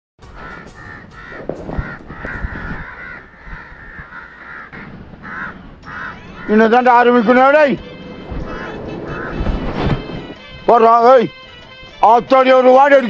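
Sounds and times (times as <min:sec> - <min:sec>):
crow cawing: 0:00.2 - 0:07.4, 0:08.4 - 0:09.6.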